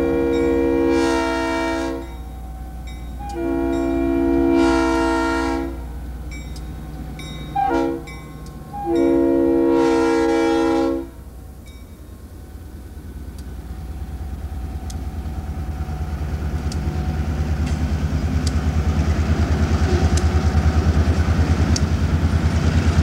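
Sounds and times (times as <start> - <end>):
locomotive air horn blasts: 0.0 - 6.0, 7.6 - 11.3
train rumble: 0.0 - 23.0.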